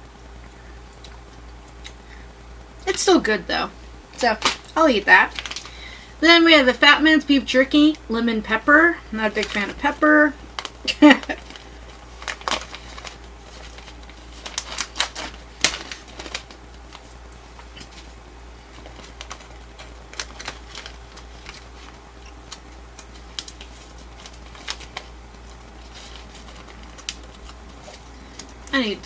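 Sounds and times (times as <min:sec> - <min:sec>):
plastic snack bag crinkling: 0:04.2 - 0:05.9, 0:09.2 - 0:29.0.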